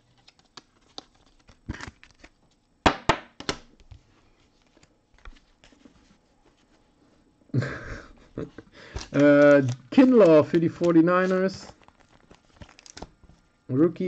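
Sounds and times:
wrapper crinkling rustles: 0:00.0 - 0:02.6, 0:08.9 - 0:13.4.

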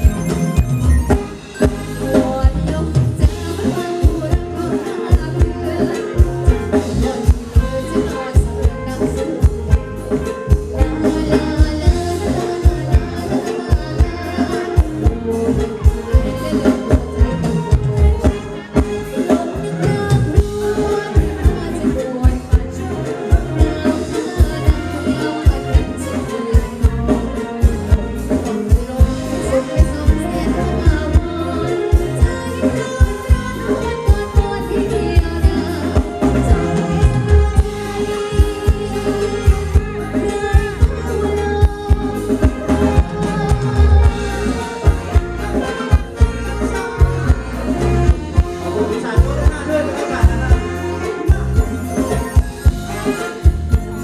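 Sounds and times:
electric guitar: 0:00.0 - 0:54.0
live band dance music: 0:00.0 - 0:54.0
steady drum beat: 0:00.0 - 0:54.0
woman singing: 0:00.0 - 0:54.0.

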